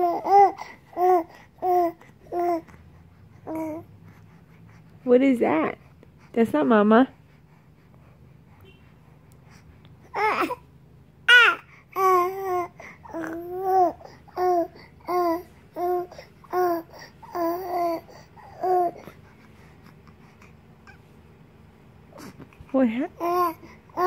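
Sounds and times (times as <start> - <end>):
baby cooing and babbling: 0.0 - 4.0, 10.0 - 10.7, 11.3 - 19.4, 23.2 - 24.0.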